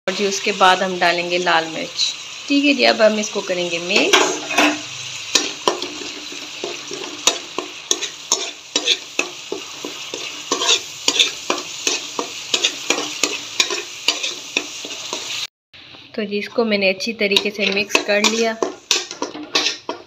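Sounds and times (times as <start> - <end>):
oil sizzling in pan: 0.1 - 15.5, 17.0 - 20.0
metal spatula scraping pan: 3.9 - 15.4, 17.3 - 20.0.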